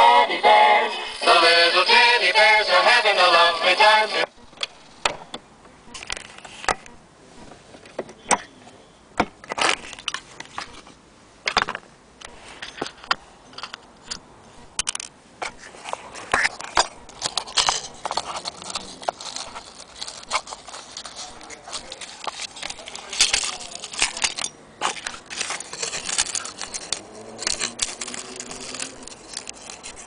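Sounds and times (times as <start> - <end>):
handling clicks and knocks: 16.3 - 30.0
small metallic rattles: 16.7 - 30.0.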